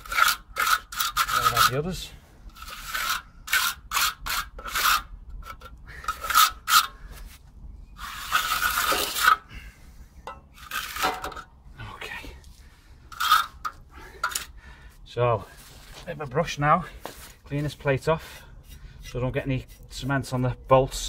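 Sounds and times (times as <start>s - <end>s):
trowel scraping wet concrete: 0.0s - 7.4s, 8.0s - 9.5s, 10.5s - 11.5s, 13.1s - 14.5s.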